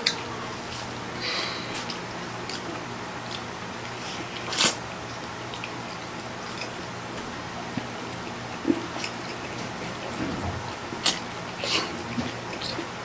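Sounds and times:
soft chewing: 0:00.0 - 0:13.0
noodle slurp: 0:03.9 - 0:04.8.

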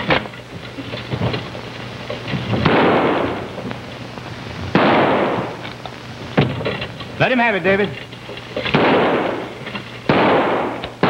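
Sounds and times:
gunshots: 0:02.4 - 0:03.7, 0:04.7 - 0:05.7, 0:08.7 - 0:11.0.

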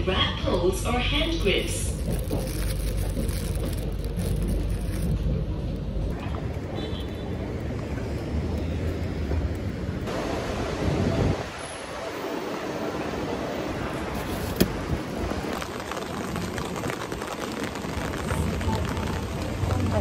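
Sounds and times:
traffic rumble: 0:00.0 - 0:20.0
heavy rain hiss: 0:09.8 - 0:20.0.

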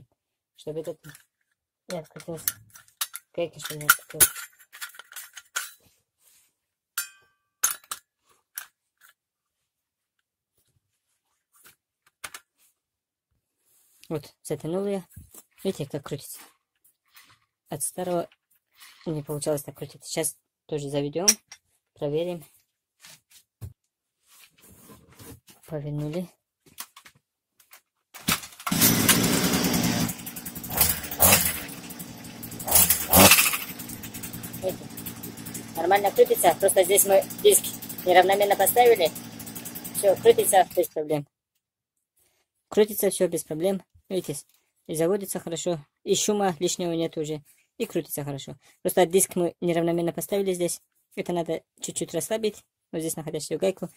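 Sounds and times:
brush cutter engine revving: 0:28.7 - 0:41.0.

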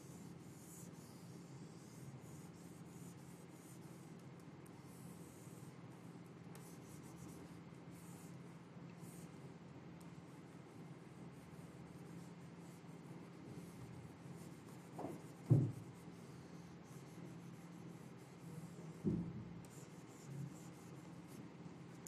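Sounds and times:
faint steady hum: 0:00.0 - 0:22.0
pen strokes on drawing tablet: 0:11.2 - 0:19.0, 0:19.7 - 0:21.4
dull knocks: 0:15.0 - 0:15.8, 0:19.0 - 0:19.5.

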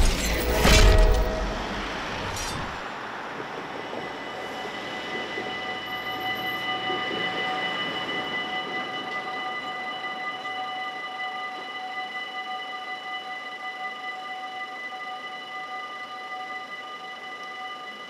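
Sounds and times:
road traffic noise: 0:00.0 - 0:09.6
level crossing warning bell: 0:03.6 - 0:18.0.

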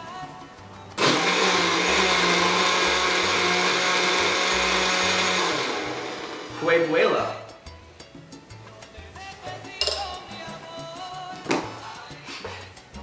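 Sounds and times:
blender running: 0:01.0 - 0:06.8.

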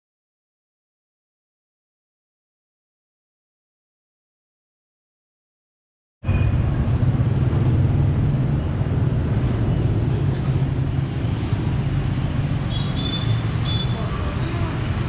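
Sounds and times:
motorbike engines running: 0:06.3 - 0:15.0.

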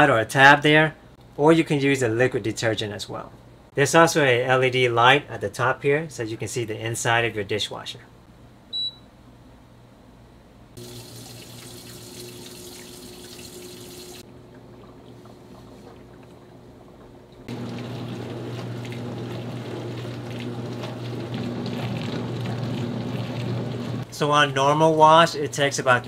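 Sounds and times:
short electronic beep: 0:08.7 - 0:09.1
water splashing and spraying: 0:10.8 - 0:14.2, 0:17.5 - 0:24.2
dishwasher pump hum: 0:10.8 - 0:26.0.

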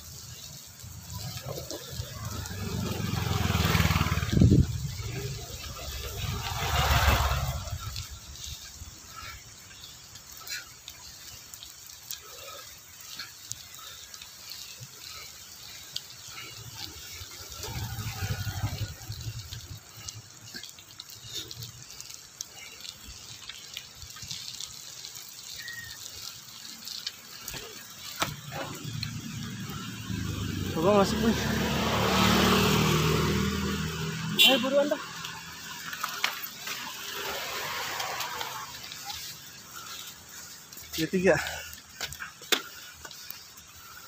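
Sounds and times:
dripping ticks: 0:00.0 - 0:44.0
rain hiss on wet road: 0:00.0 - 0:44.0
motorbike passing: 0:00.4 - 0:10.5, 0:15.0 - 0:20.3, 0:27.6 - 0:41.5.

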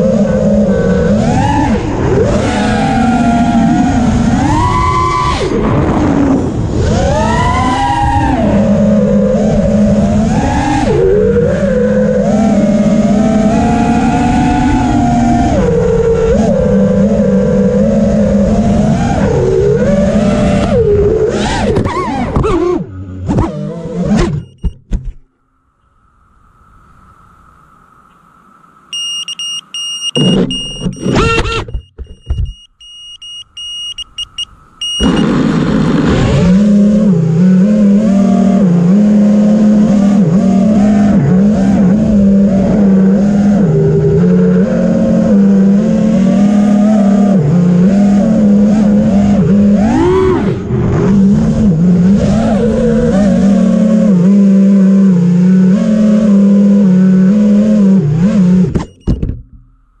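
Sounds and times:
quadcopter propeller buzz: 0:34.2 - 0:46.3
quadcopter motor spurts: 0:34.8 - 0:43.2.

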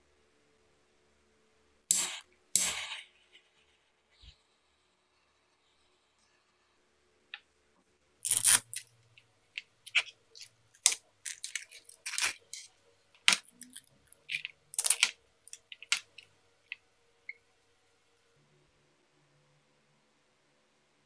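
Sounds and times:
plastic parts clicking and knocking: 0:08.3 - 0:16.8.

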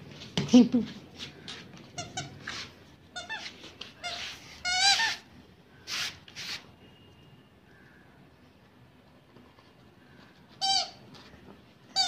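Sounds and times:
squeaky toy squeaks: 0:01.9 - 0:05.3, 0:10.6 - 0:11.0.

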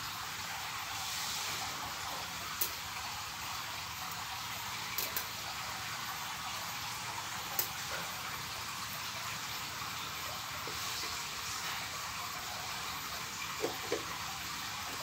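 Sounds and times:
steady background hiss: 0:00.0 - 0:15.0.

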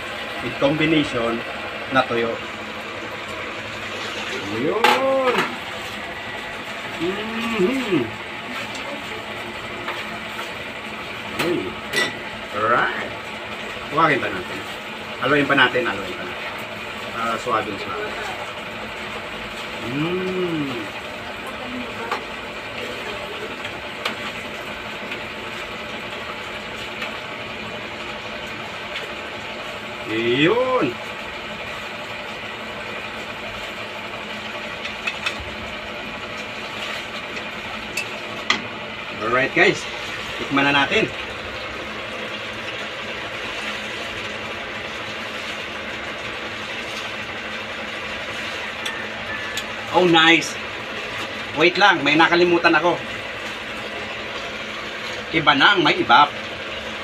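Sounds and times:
steady background hum: 0:00.0 - 0:57.0.

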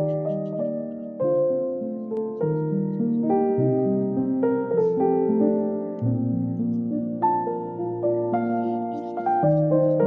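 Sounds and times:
gentle keyboard music: 0:00.0 - 0:10.0.

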